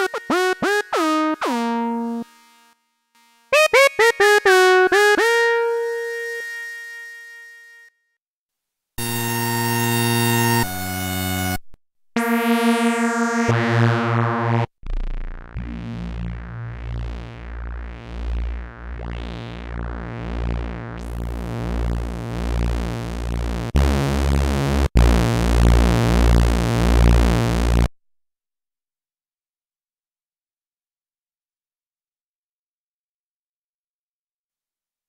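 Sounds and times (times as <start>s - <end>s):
low synthesizer note pulsing: 12.2s - 27.9s
synthesizer held notes: 12.2s - 27.9s.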